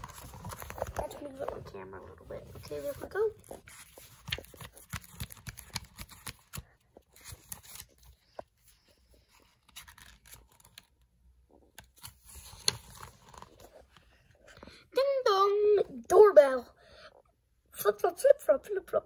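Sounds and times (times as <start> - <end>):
book pages rustling: 0.0 - 14.8.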